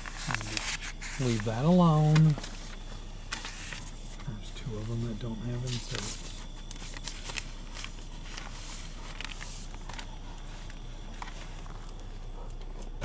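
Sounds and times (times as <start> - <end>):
newsprint rustling: 4.6 - 12.0.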